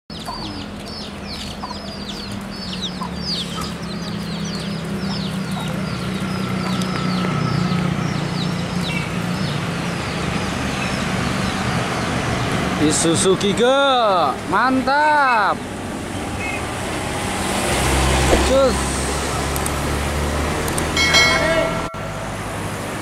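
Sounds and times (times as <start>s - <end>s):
bird chirping: 0.1s - 12.5s
truck diesel engine droning: 0.1s - 23.0s.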